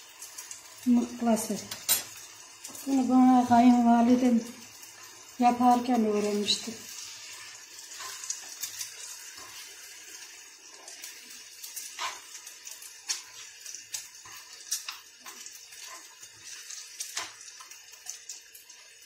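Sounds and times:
onions sizzling in a pan: 0:00.0 - 0:19.0
metal spoon scraping a pan: 0:06.1 - 0:17.4.

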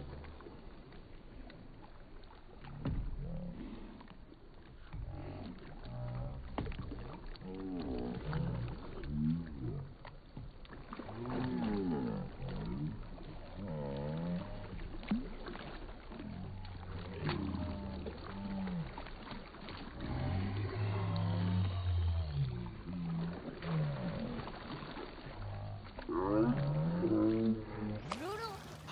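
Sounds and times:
low rumble: 0:19.8 - 0:24.5
drawn-out wordless voices: 0:26.2 - 0:28.9.

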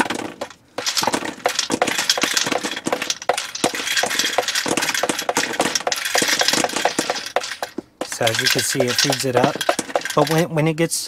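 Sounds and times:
paintballs clattering into box: 0:00.0 - 0:10.6.

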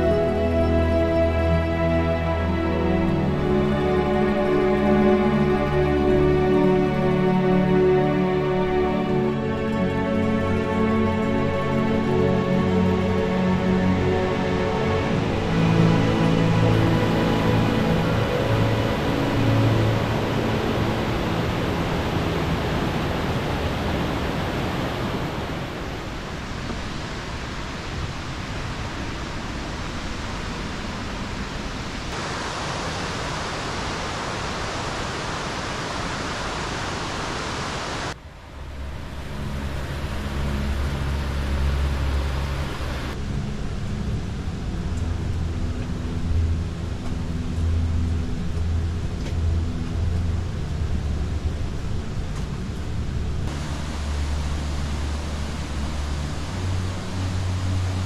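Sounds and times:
waterfall rushing water: 0:00.0 - 0:58.0.

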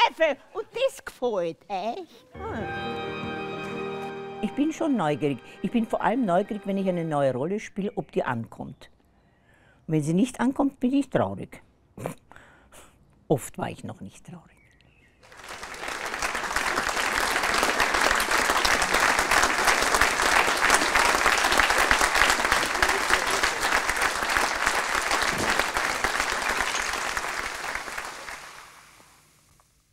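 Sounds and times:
audience applauding: 0:15.2 - 0:29.2.

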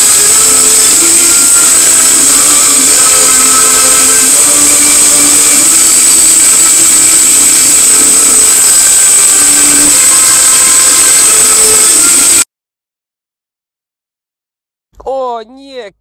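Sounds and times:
loud harsh hissing: 0:00.0 - 0:12.5.

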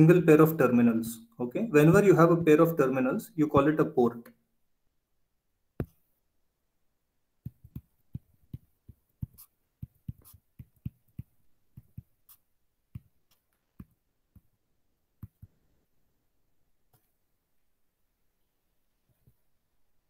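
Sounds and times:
stylus tapping on tablet screen: 0:05.8 - 0:06.2, 0:07.4 - 0:15.6.

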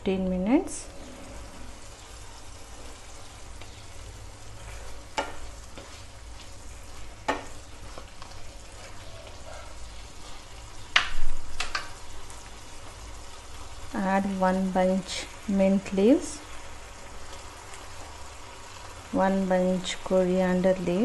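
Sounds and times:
curry sizzling in pan: 0:00.4 - 0:21.0
spoon knocking and scraping pan: 0:04.7 - 0:06.0, 0:07.2 - 0:09.5.

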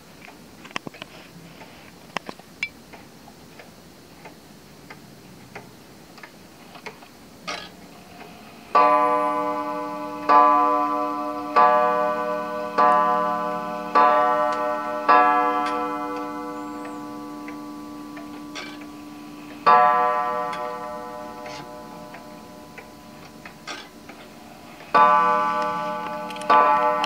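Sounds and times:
wall clock ticking softly: 0:02.1 - 0:27.0
clock mechanism whir and clunk: 0:02.2 - 0:27.0
clock gong striking: 0:08.7 - 0:27.0.

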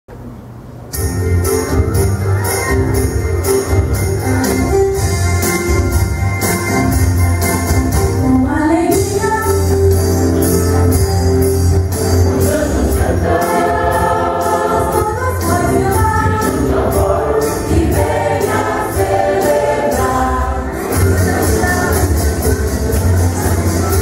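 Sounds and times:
instrumental accompaniment: 0:00.9 - 0:24.0
steady percussion beat: 0:01.0 - 0:08.3, 0:08.9 - 0:24.0
choir singing: 0:12.3 - 0:22.4.

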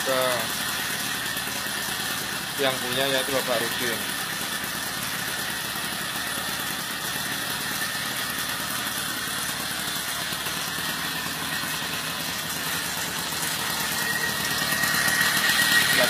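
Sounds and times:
two-stroke engine idling: 0:00.0 - 0:16.0.

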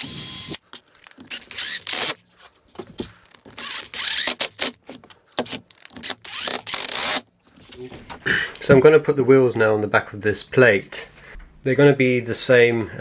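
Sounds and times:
tools rustling and knocking on workbench: 0:02.3 - 0:03.5.

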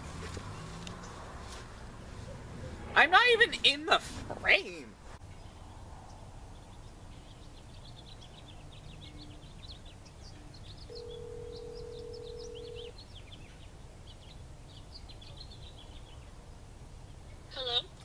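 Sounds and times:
small birds chirping: 0:00.0 - 0:01.5, 0:05.2 - 0:18.0
telephone ringback tone: 0:10.9 - 0:12.9.

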